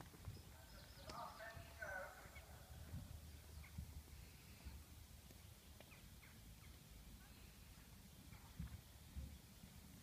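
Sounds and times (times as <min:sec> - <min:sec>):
wind rumble on microphone: 0:00.0 - 0:04.9, 0:08.2 - 0:10.0.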